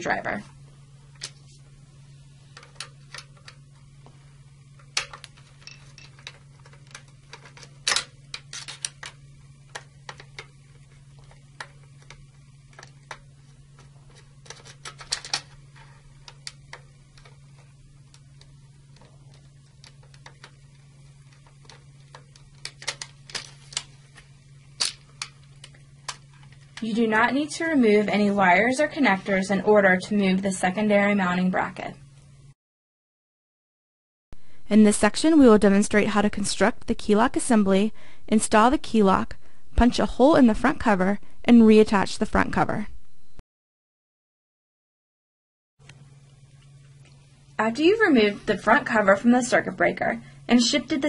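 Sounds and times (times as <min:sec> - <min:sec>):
steady low hum: 0:00.0 - 0:32.6, 0:34.4 - 0:43.4, 0:45.8 - 0:51.0.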